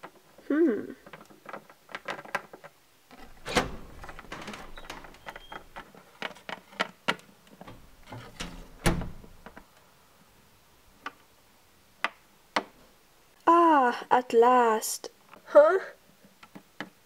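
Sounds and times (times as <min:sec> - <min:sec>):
handling rubbing: 0:01.2 - 0:09.7.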